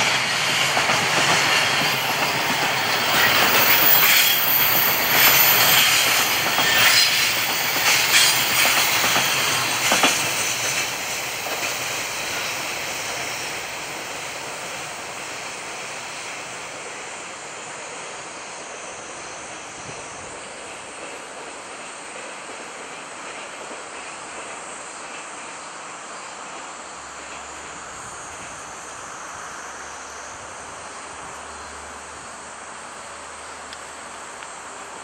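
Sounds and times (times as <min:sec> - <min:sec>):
freight train wheels clacking: 0:00.0 - 0:17.9.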